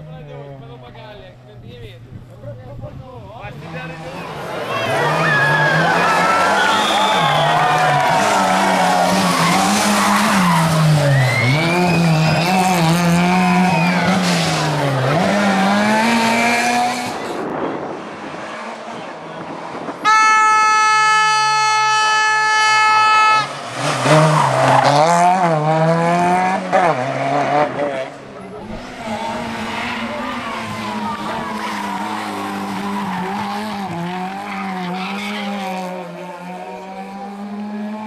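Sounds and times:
rally car engines revving: 0.0s - 20.6s, 21.3s - 38.0s
steady horn blast: 20.0s - 23.6s.

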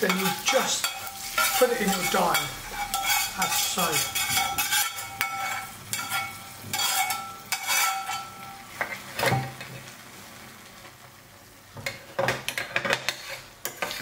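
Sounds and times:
spoon stirring dal: 0.0s - 9.1s, 12.5s - 14.0s
metal spoon scraping metal pan: 0.0s - 9.5s, 12.5s - 14.0s
hot oil sizzling: 0.0s - 14.0s.

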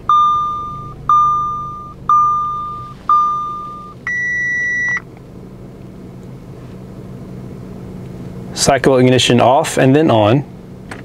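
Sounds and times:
car warning chime dings: 0.0s - 5.1s
higher steady beep: 0.0s - 5.1s
car engine idling: 0.0s - 11.0s.

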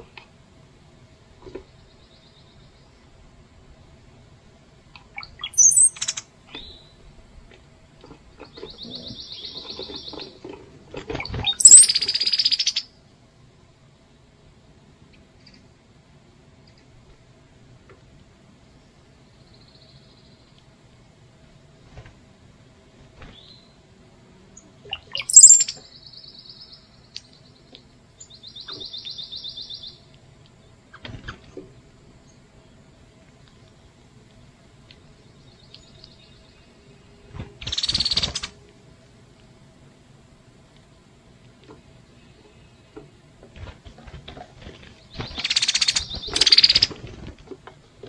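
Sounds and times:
songbird singing trills: 5.0s - 7.1s, 8.4s - 10.4s, 11.4s - 13.0s, 24.5s - 30.9s, 33.5s - 38.6s, 45.0s - 47.0s
bird whistle and rattle: 5.1s - 6.8s, 8.4s - 10.4s, 11.1s - 12.9s, 24.9s - 25.9s, 37.6s - 38.5s, 45.0s - 47.1s
soft bird trill: 5.2s - 7.0s, 11.4s - 12.9s, 24.9s - 27.4s, 45.2s - 47.0s.

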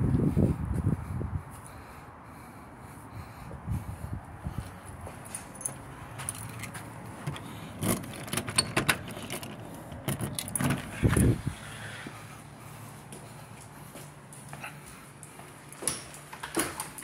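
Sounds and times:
keys jangling in door lock: 5.3s - 11.2s, 15.8s - 17.0s.

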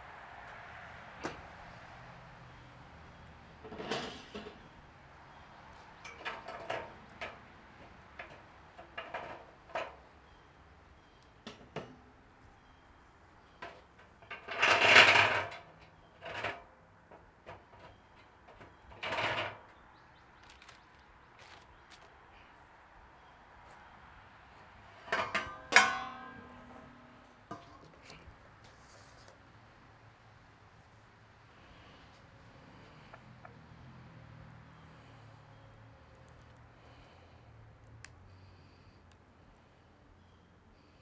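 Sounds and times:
metal rods scraping: 3.6s - 4.6s, 13.6s - 16.7s, 17.5s - 19.6s, 24.9s - 28.3s
metal rods clinking: 24.9s - 28.2s.

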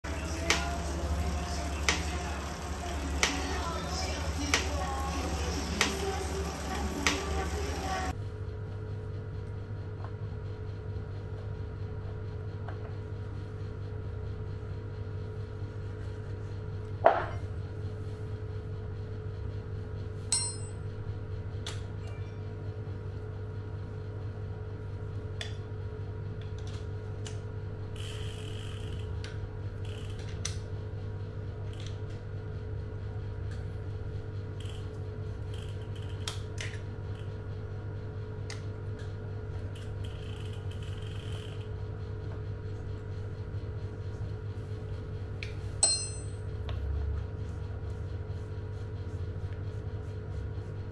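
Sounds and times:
background hum: 0.0s - 50.9s
metallic clinks: 20.3s - 20.8s, 45.8s - 46.4s.

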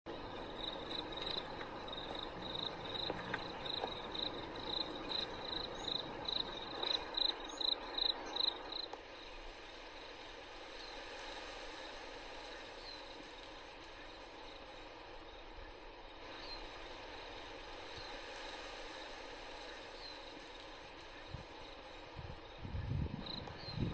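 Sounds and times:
faint outdoor background: 0.0s - 23.9s
cricket chirping: 0.1s - 10.2s, 19.0s - 23.9s.

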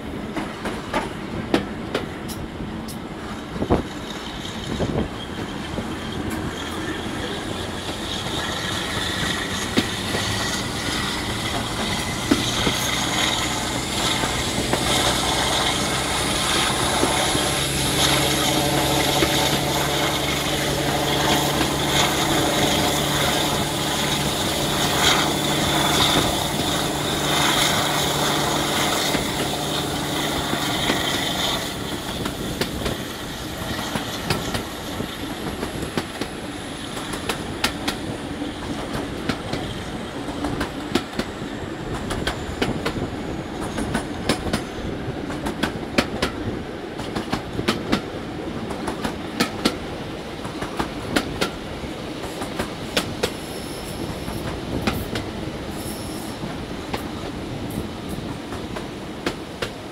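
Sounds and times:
train wheels clicking on rails: 0.0s - 59.9s
wind: 0.0s - 59.9s
locomotive engines whining: 2.3s - 45.4s.

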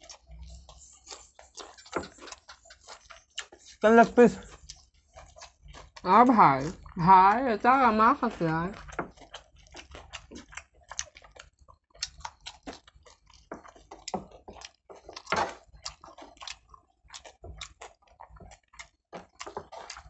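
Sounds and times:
close-up chewing and biting: 0.0s - 20.0s
wet mouth clicks and smacks: 8.8s - 18.0s.

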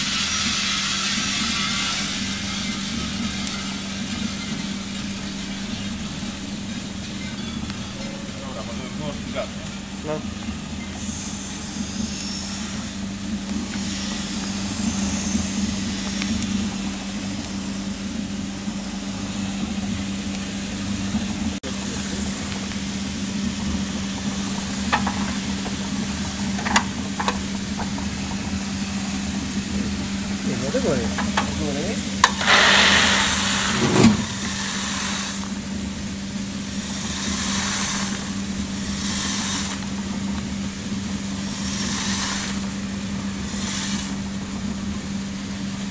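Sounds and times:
coffee roaster motor hum: 0.0s - 45.9s
coffee beans being stirred: 0.4s - 8.6s, 21.7s - 44.8s
rushing hiss: 21.7s - 35.9s.

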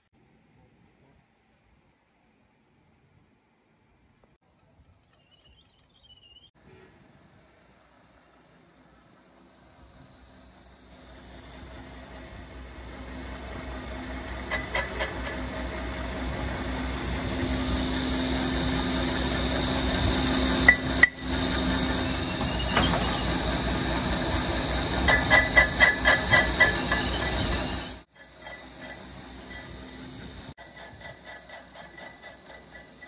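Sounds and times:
grinding wheel grinding metal: 14.2s - 33.0s.

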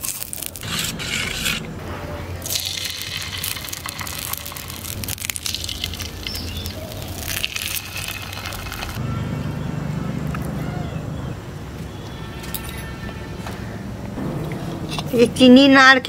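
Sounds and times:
batter sizzling in hot oil: 2.5s - 9.0s.

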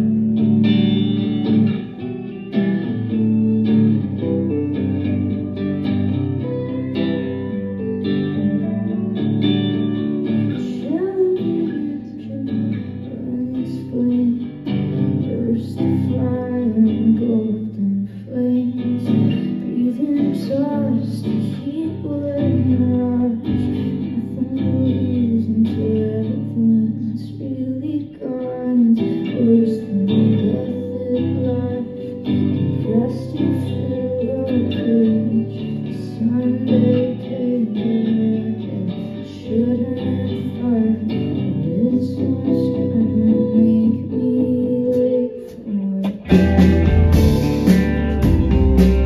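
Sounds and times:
live band with lead vocal: 28.1s - 49.0s.

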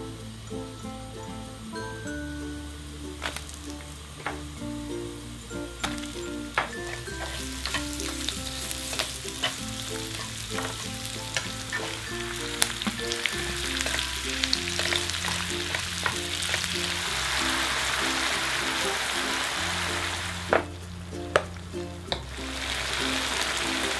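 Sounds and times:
oil sizzling in a frying pan: 0.0s - 20.9s, 22.1s - 23.9s
light background tune: 0.0s - 23.9s
utensil tapping a pan: 4.2s - 4.5s, 5.8s - 18.8s.

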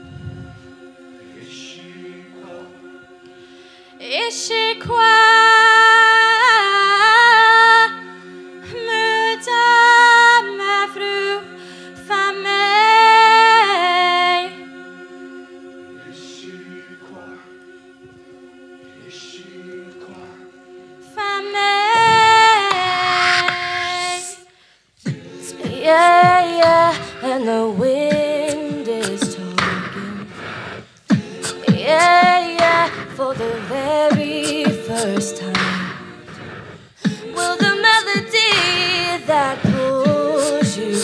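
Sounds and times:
low choral hum: 0.0s - 24.4s, 25.0s - 41.0s
high female solo singing: 21.2s - 24.4s, 25.5s - 30.3s, 31.6s - 36.1s, 37.2s - 41.0s.

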